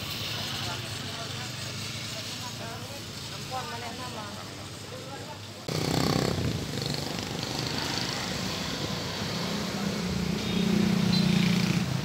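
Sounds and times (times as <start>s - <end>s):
street traffic passing: 0.0s - 12.0s
motorcycle engine passing close: 5.7s - 12.0s.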